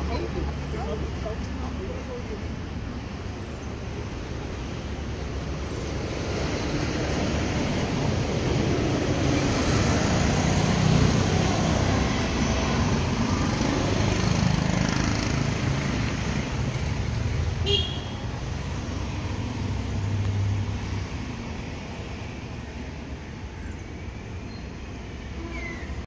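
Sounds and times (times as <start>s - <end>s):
road traffic rushing by: 0.0s - 26.0s.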